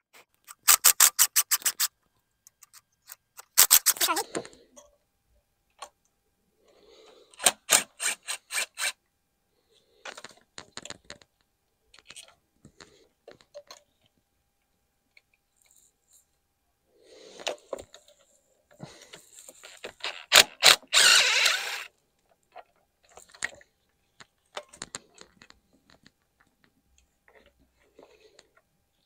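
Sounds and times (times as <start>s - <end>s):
impact driver rapid clicks: 0.5s - 1.9s, 3.4s - 4.2s, 7.4s - 9.0s, 20.3s - 21.9s.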